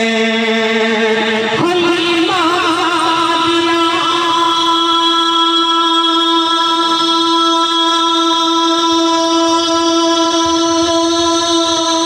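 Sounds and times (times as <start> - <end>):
loud steady held tone: 0.0 - 12.0.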